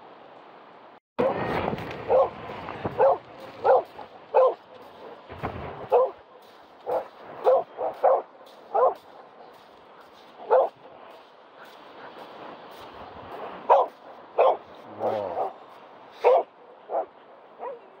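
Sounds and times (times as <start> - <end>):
dog barking: 2.1 - 2.3, 2.9 - 5.1, 5.9 - 6.2, 6.8 - 9.2, 10.4 - 10.8, 13.6 - 15.6, 16.2 - 18.0.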